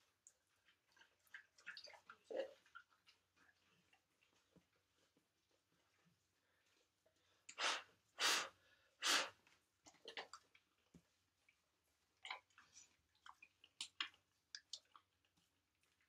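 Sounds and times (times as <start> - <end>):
soft rustling: 2.4 - 7.4.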